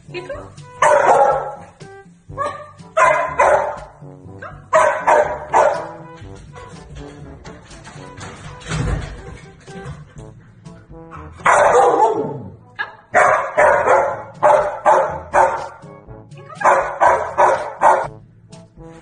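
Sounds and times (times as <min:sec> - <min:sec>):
background music: 0:00.0 - 0:19.0
dog barking: 0:00.8 - 0:01.7, 0:02.4 - 0:06.0, 0:11.4 - 0:12.5, 0:13.1 - 0:15.8, 0:16.6 - 0:18.1.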